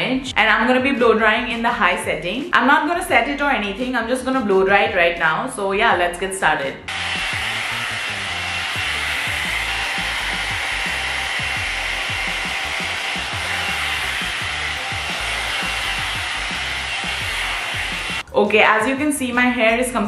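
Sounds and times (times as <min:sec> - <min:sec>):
hair dryer air rushing: 0:06.9 - 0:18.2.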